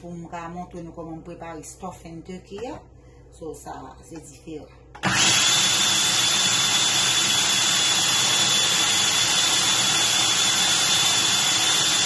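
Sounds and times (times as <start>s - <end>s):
blender grinding bread: 5.0s - 12.0s
blender motor whining: 5.0s - 12.0s.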